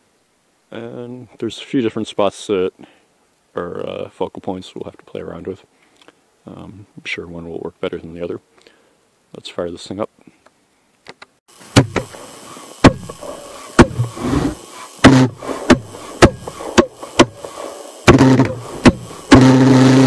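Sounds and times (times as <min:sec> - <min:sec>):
pulsejet engine popping: 0:11.7 - 0:20.0.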